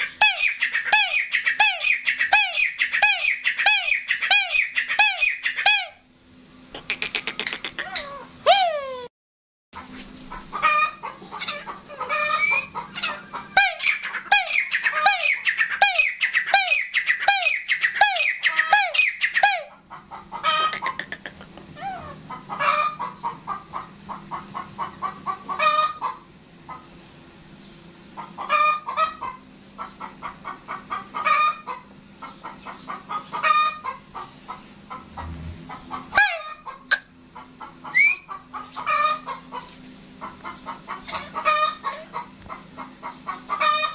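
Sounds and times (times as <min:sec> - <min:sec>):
francolin calling: 0:00.0 - 0:05.8, 0:10.6 - 0:19.6, 0:37.8 - 0:39.2.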